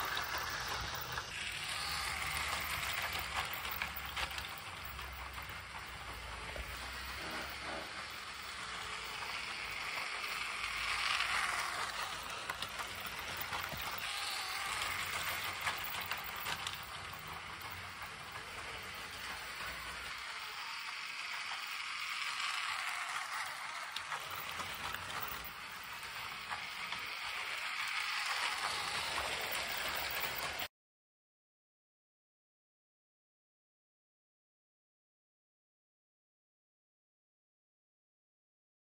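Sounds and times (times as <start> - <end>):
toy train wheels clattering on track: 0.0 - 30.7.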